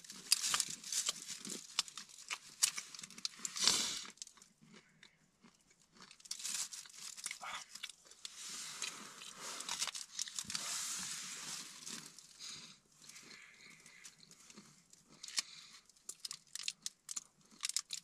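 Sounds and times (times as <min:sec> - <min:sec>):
plastic bag crinkling: 0:00.0 - 0:04.3, 0:06.0 - 0:12.3, 0:15.2 - 0:18.0
food being chewed: 0:00.0 - 0:18.0.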